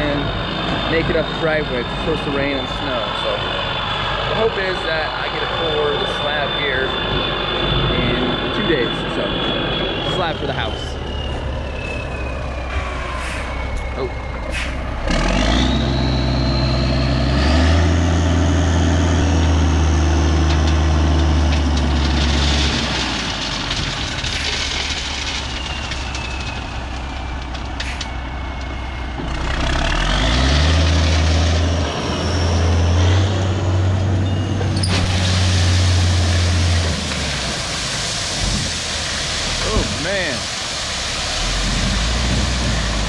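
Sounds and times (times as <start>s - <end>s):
gravel pouring out: 0.0s - 3.4s, 4.0s - 7.1s, 15.2s - 33.0s, 34.8s - 43.0s
diesel truck engine revving: 0.0s - 26.2s, 27.7s - 43.0s.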